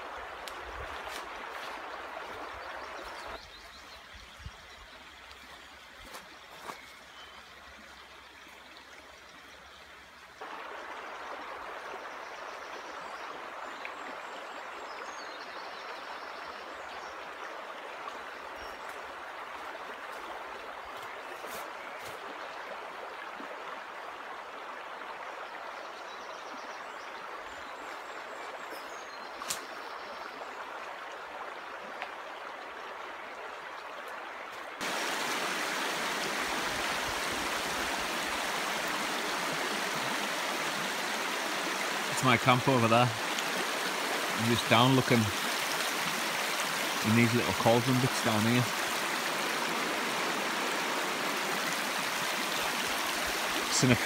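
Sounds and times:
river water rushing over rocks: 34.8 - 54.0.

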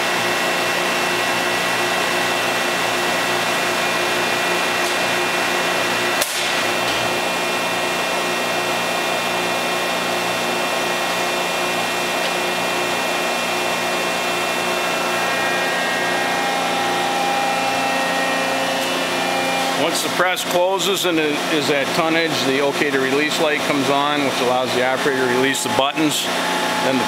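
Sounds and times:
hydraulic pump hum with whine: 0.0 - 27.0
higher steady tone: 12.7 - 20.2, 24.8 - 27.0.

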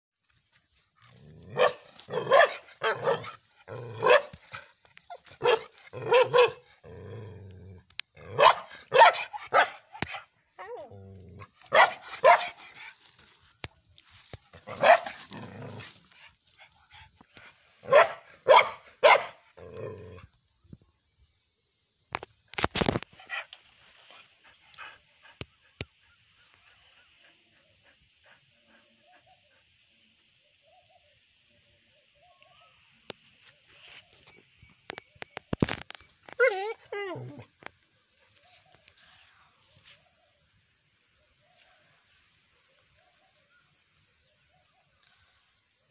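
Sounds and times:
dog barking: 1.5 - 3.3, 4.0 - 4.4, 5.4 - 6.6, 8.3 - 10.2, 11.7 - 12.6, 14.7 - 15.2, 17.8 - 19.4.

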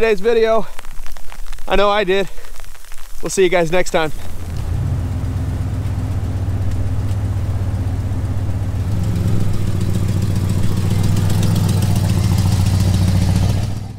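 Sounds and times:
pickup truck engine running: 4.3 - 13.9.

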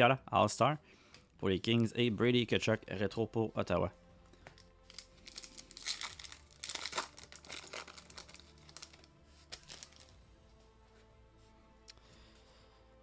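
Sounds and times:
foil wrapper crinkling: 4.5 - 10.2.

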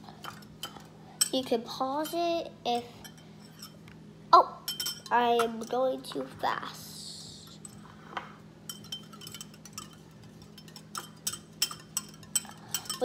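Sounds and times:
whisk clinking against glass bowl: 4.7 - 5.8, 8.7 - 13.0.

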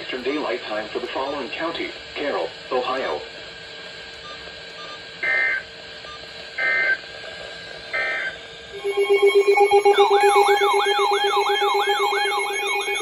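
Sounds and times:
low hum: 8.4 - 13.0
pulsing alert tone: 8.7 - 13.0
raspy digital data bursts: 8.8 - 13.0.

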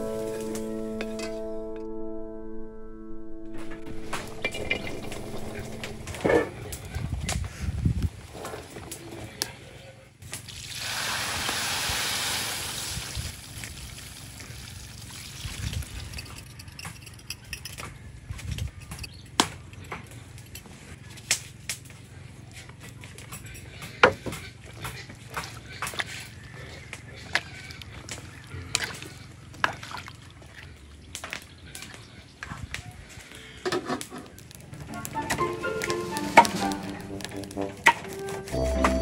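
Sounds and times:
liquid pouring with splashing hiss: 10.3 - 16.5.

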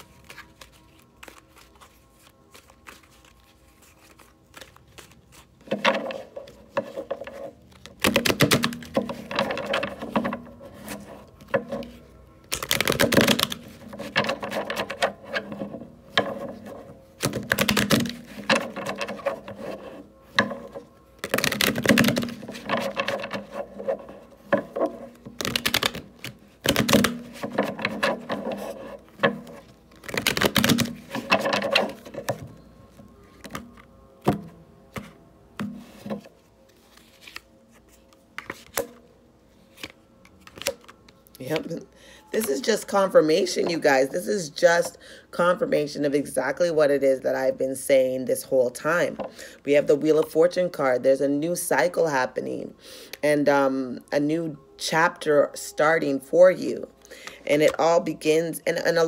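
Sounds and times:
cards being shuffled: 0.0 - 41.8.

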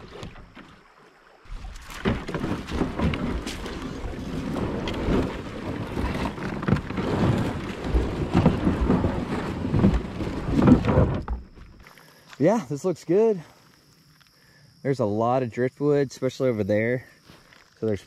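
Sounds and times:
water sloshing: 0.0 - 12.3
splashing steps: 0.0 - 12.4
kayak hull scraping over rocks: 1.5 - 12.0.

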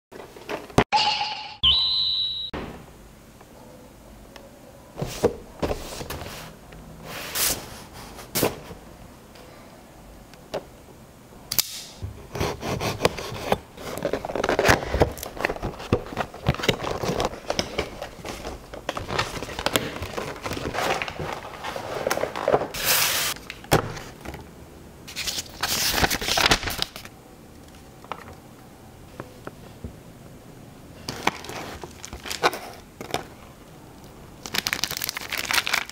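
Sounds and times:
plastic crackling: 34.0 - 35.9.

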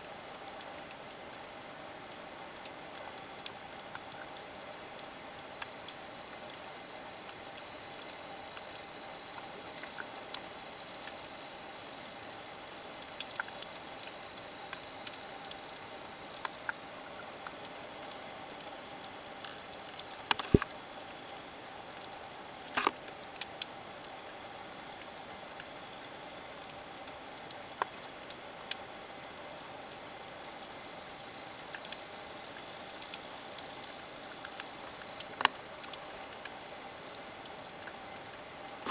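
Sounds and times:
sharp clicks and crackles: 19.4 - 21.1, 22.7 - 24.2.

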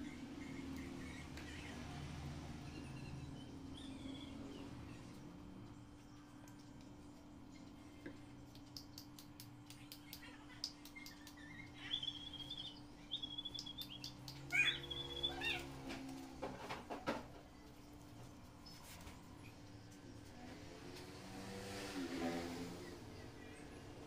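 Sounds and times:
high chirping animal calls: 11.0 - 15.8.

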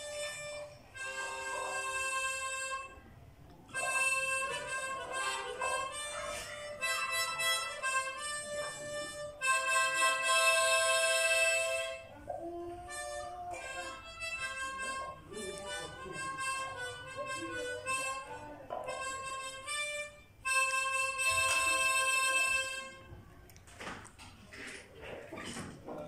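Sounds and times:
instrumental background music: 3.7 - 12.1, 12.9 - 23.1.

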